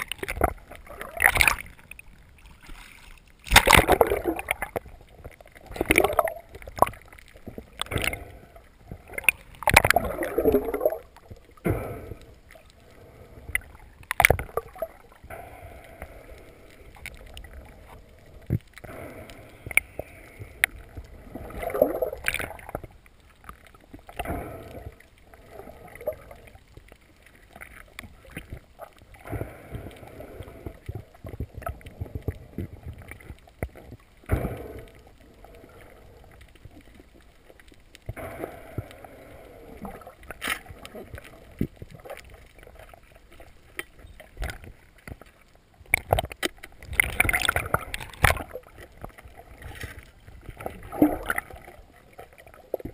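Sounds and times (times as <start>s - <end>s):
muffled underwater water swooshes: 0.0s - 46.0s.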